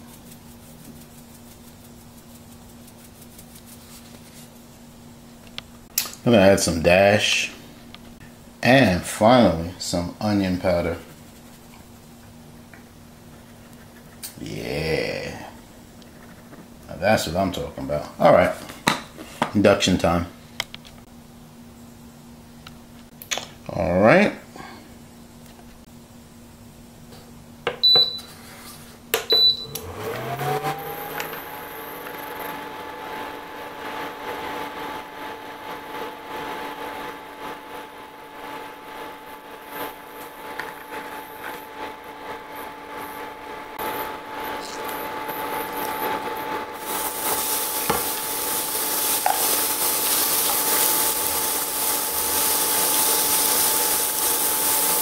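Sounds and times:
cooling fan whine and hum: 0.0 - 55.0
short beeps from cooktop buttons: 27.8 - 28.3, 29.3 - 29.8
onion sizzling in a pan: 46.8 - 55.0
spatula stirring: 46.8 - 55.0.

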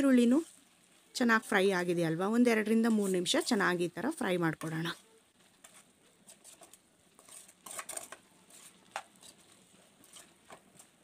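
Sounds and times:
spoon scraping and clinking on pan: 5.6 - 11.0.

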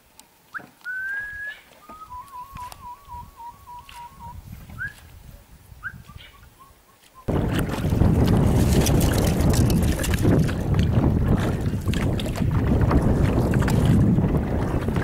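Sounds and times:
person whistling: 0.6 - 5.0.

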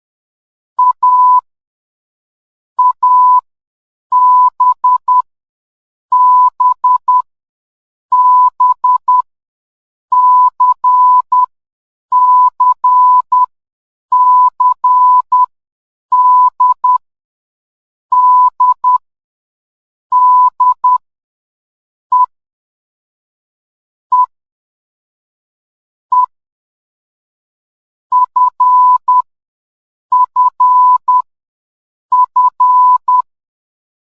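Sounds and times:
morse code beeps: 0.8 - 1.4, 2.8 - 3.4, 4.1 - 5.3, 6.1 - 7.3, 8.1 - 9.3, 10.1 - 11.5, 12.1 - 13.5, 14.1 - 15.5, 16.1 - 17.0, 18.1 - 19.0, 20.1 - 21.0, 28.1 - 29.3, 30.1 - 31.3, 32.1 - 33.3.

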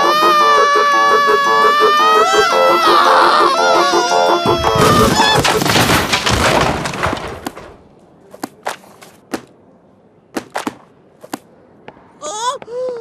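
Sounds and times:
books and shelving crashing down: 4.5 - 8.0.

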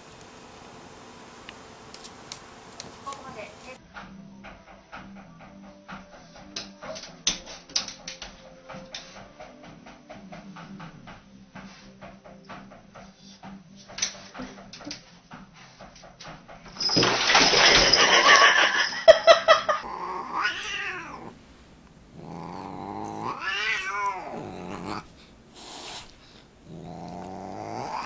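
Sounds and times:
cat yowling: 19.8 - 21.4, 22.2 - 28.0
brief hiss: 25.6 - 26.2.

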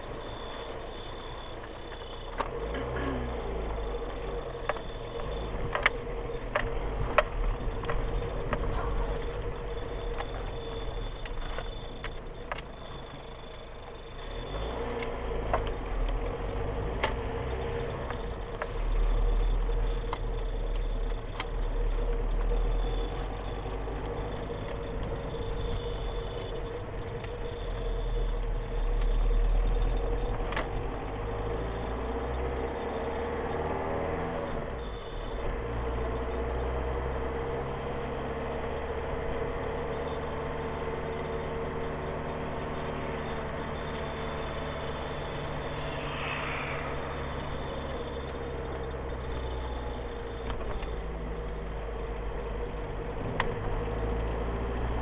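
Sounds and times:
car engine and road noise: 0.0 - 55.0
faint high-pitched whine: 42.7 - 51.5.

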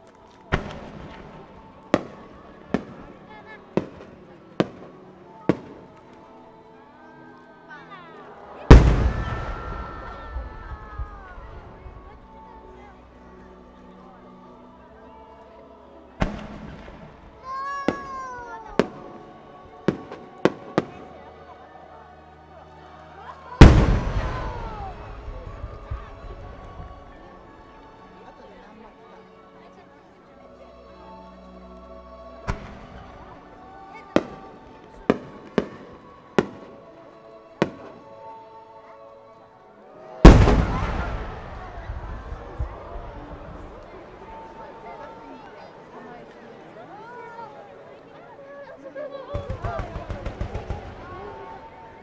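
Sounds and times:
faint music: 0.0 - 52.0
fireworks bursting: 0.5 - 3.1, 8.7 - 11.9, 16.2 - 17.1, 23.6 - 26.9, 40.2 - 44.5, 49.4 - 51.6.

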